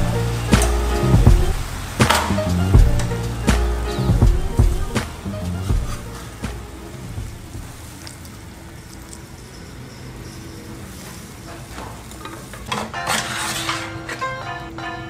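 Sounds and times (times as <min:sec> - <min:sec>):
meat and vegetables sizzling in pan: 0:00.0 - 0:12.8.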